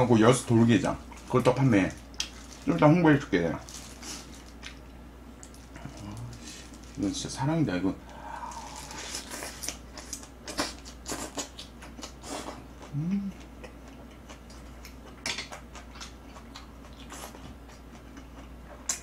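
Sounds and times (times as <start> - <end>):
person humming: 5.8 - 6.4, 8.0 - 9.1, 12.9 - 13.5.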